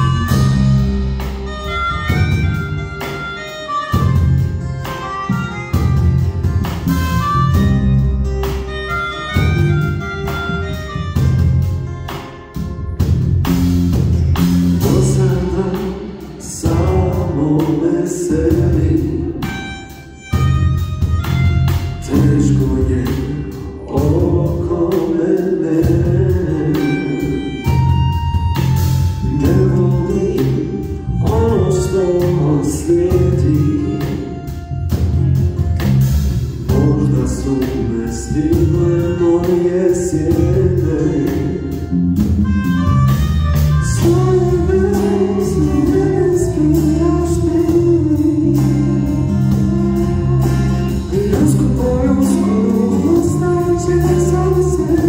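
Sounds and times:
cajon and cymbal beat: 0:00.0 - 0:55.0
electric guitar: 0:00.0 - 0:55.0
live acoustic band: 0:00.0 - 0:55.0
strummed acoustic guitars: 0:00.0 - 0:55.0
man singing lead vocal: 0:14.7 - 0:19.9, 0:21.9 - 0:28.0, 0:29.2 - 0:34.6, 0:36.6 - 0:42.1, 0:43.8 - 0:55.0.

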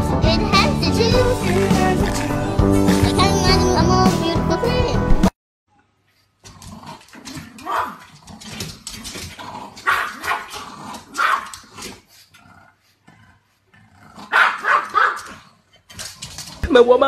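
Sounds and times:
small dog barking: 0:09.9 - 0:10.5, 0:11.1 - 0:11.5, 0:14.3 - 0:15.3.

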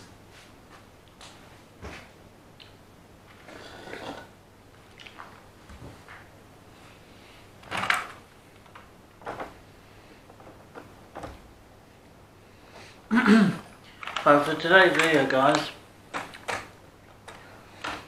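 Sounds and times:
plastic knocks and clicks: 0:10.3 - 0:11.4, 0:14.0 - 0:18.0.

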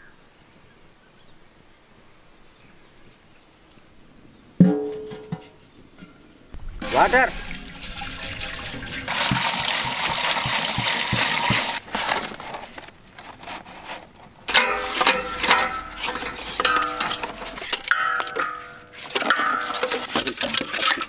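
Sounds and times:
water gushing into metal pot: 0:06.6 - 0:11.9, 0:14.5 - 0:21.0.

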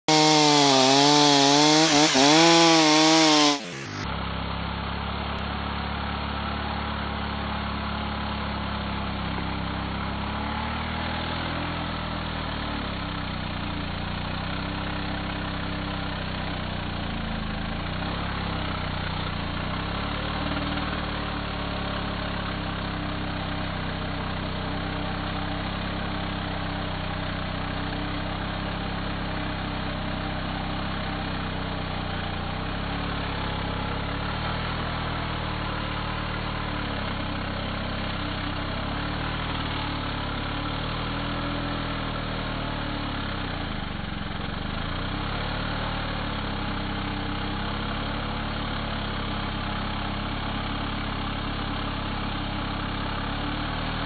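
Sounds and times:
chainsaw cutting log: 0:00.0 - 0:04.0.

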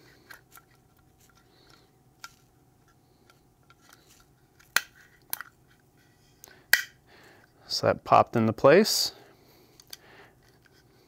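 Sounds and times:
faint plastic clicks and scraping: 0:00.1 - 0:06.8, 0:09.7 - 0:10.9.

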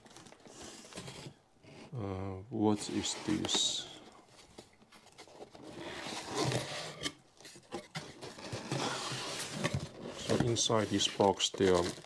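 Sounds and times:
cardboard scraping on cardboard: 0:05.4 - 0:07.2, 0:07.8 - 0:12.0.

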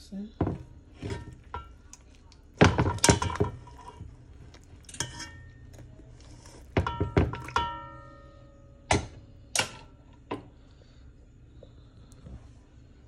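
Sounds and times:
metal fork clanking against pot: 0:01.0 - 0:02.0, 0:02.6 - 0:04.0, 0:04.8 - 0:05.8.

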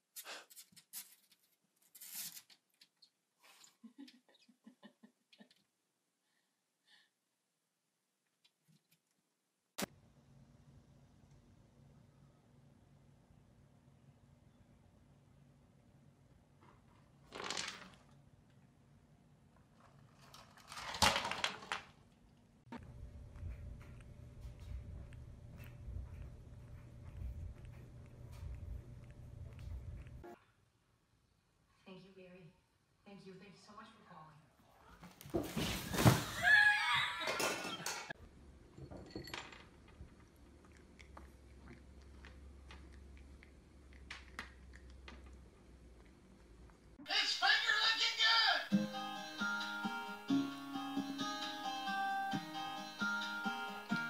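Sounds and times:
plastic cup scraping on floor: 0:17.2 - 0:18.1
steady low hum: 0:22.7 - 0:30.4
cat crunching kibble: 0:22.8 - 0:30.2, 0:39.8 - 0:46.9.

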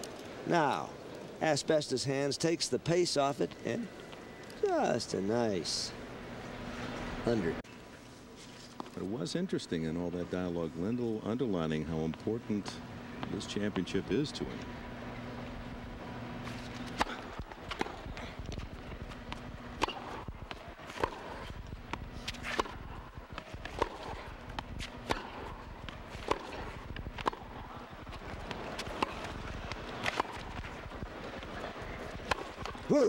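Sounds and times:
tennis balls struck by rackets: 0:16.4 - 0:33.0.

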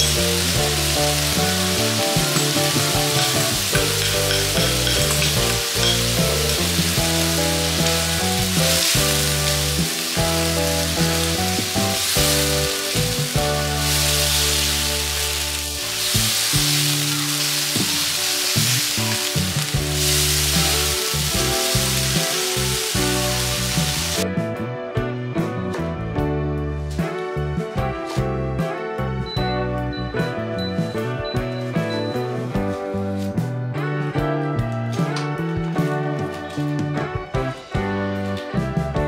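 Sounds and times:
squid sizzling in a wok: 0:00.0 - 0:24.2
background music: 0:00.0 - 0:39.0.

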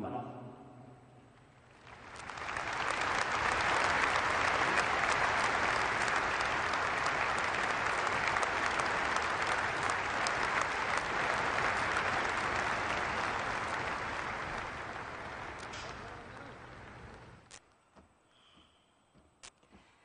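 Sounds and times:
audience applauding: 0:01.6 - 0:17.4.

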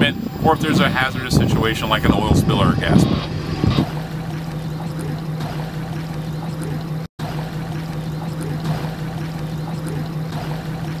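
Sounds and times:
low motor hum: 0:00.0 - 0:11.0
water sloshing and trickling: 0:03.8 - 0:11.0.

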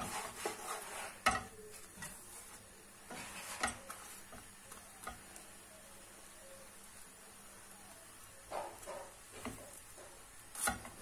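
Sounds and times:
spatula scraping frying pan: 0:00.0 - 0:05.4, 0:08.6 - 0:11.0.

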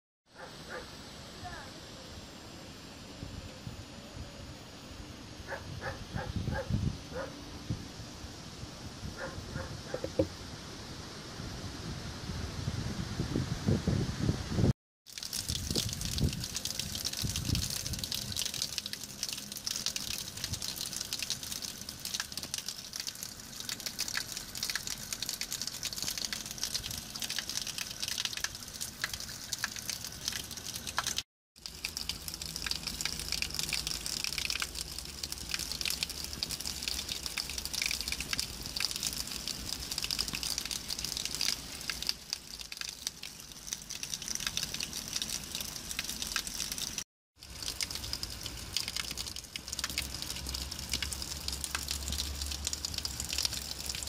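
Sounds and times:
water splashing onto wet rock: 0:15.1 - 0:54.0.

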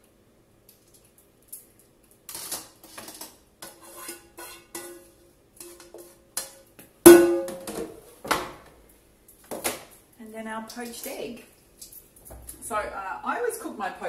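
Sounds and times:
utensil scraping metal pan: 0:02.8 - 0:06.1
pan clanging down: 0:07.1 - 0:07.9.

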